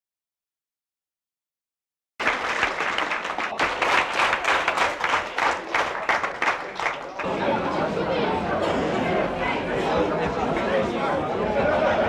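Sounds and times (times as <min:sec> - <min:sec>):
crowd applauding: 0:02.2 - 0:07.5.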